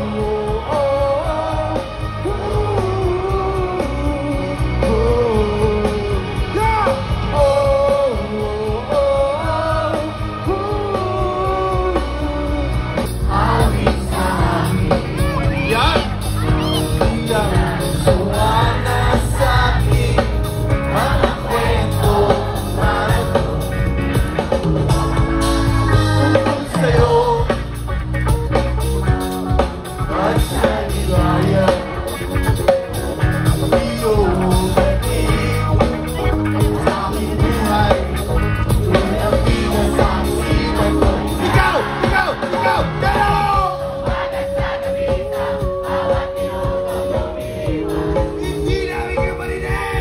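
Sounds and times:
rock band playing live: 0:00.0 - 0:50.0
person singing: 0:33.4 - 0:50.0.

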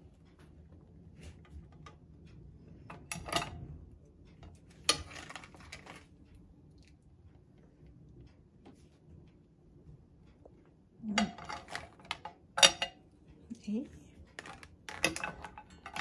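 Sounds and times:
crab legs knocking on a pan: 0:14.4 - 0:16.0.

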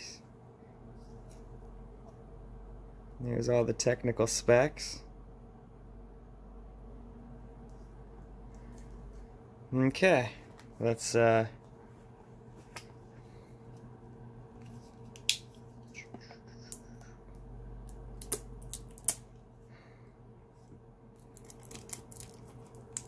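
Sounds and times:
plastic wrap crinkling: 0:21.2 - 0:23.0
plastic wrap snipping: 0:21.2 - 0:23.0.

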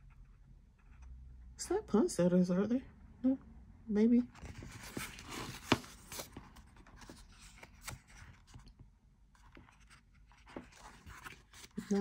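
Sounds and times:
paper pages rustling: 0:04.4 - 0:08.8, 0:09.4 - 0:12.0.

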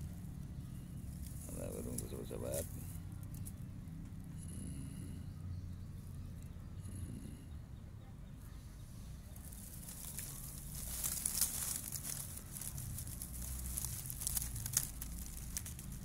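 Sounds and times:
dry grass rustling and crackling: 0:00.0 - 0:03.6, 0:09.1 - 0:16.0.

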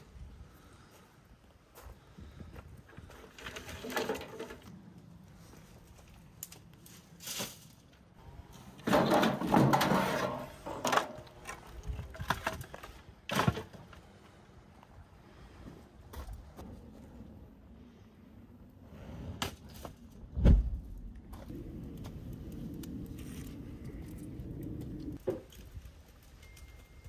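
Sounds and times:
brushwood and planks crashing: 0:08.8 - 0:14.0.

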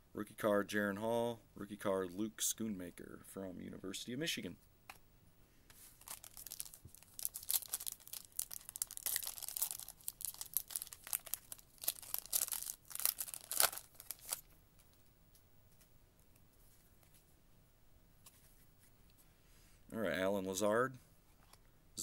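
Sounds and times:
foil wrapper tearing and crinkling: 0:06.0 - 0:14.5.

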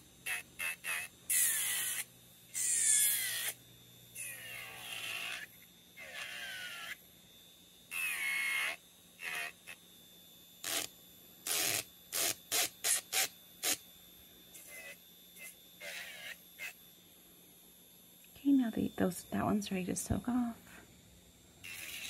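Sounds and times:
nail drill whining: 0:00.0 - 0:07.0, 0:07.8 - 0:09.8, 0:10.6 - 0:13.8, 0:14.5 - 0:16.8, 0:21.6 - 0:22.0.

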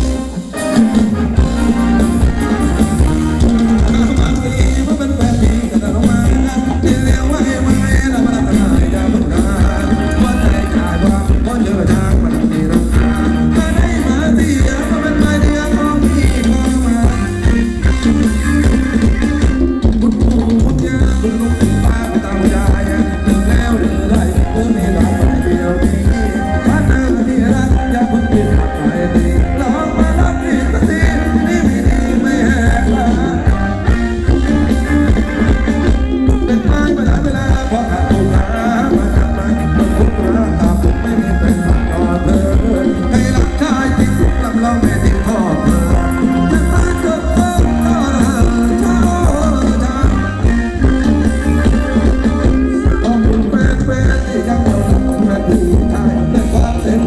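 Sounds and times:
live band dance music: 0:00.0 - 0:57.0
person singing: 0:00.0 - 0:57.0.

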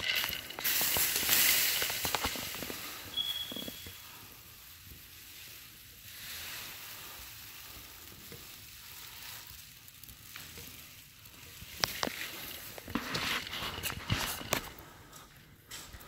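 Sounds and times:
footsteps shuffling on paper: 0:11.8 - 0:16.0.

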